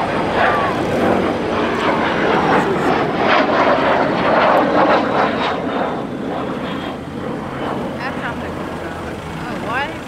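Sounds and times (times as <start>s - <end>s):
jet flying overhead: 0.0s - 10.0s.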